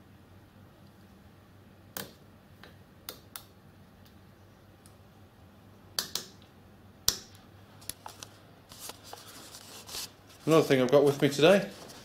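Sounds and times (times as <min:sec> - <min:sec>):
sharp clicks of knobs and switches: 0:06.0 - 0:08.3.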